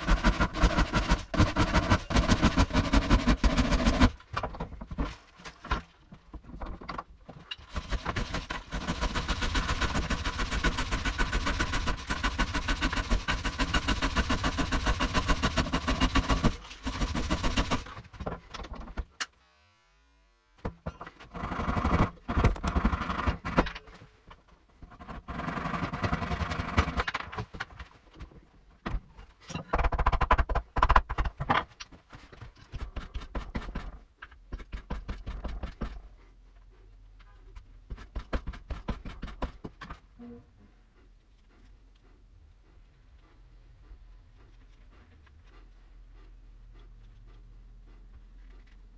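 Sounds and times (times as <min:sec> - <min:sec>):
rapid scraping on wood: 0:00.0 - 0:04.2, 0:07.7 - 0:18.1.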